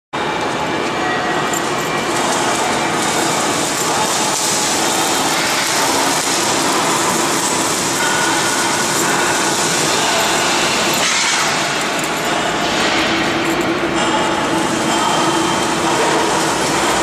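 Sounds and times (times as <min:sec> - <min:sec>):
industrial machinery running: 0:00.2 - 0:17.0.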